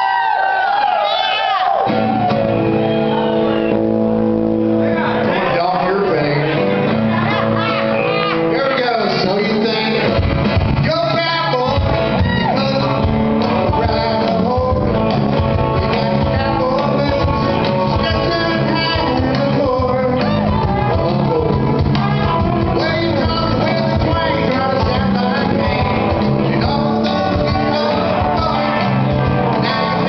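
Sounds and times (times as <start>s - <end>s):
electric bass: 1.7s - 30.0s
strummed acoustic guitar: 1.9s - 30.0s
man singing lead: 10.8s - 30.0s.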